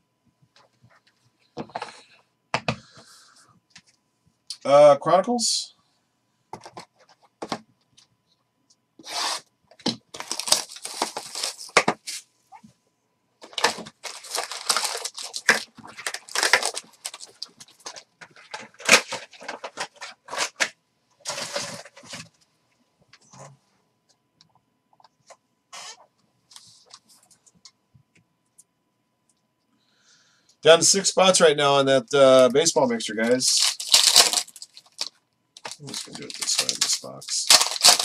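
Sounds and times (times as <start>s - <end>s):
foil packs crinkling: 9.0s - 12.0s, 13.4s - 22.2s, 33.2s - 38.0s
cardboard box tearing open: 10.2s - 11.8s, 13.6s - 16.8s, 33.6s - 34.6s, 36.1s - 38.0s.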